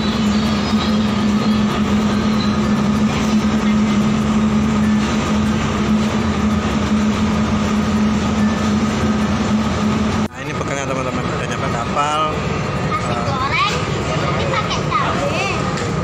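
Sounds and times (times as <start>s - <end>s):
diesel engines droning: 0.0s - 16.0s.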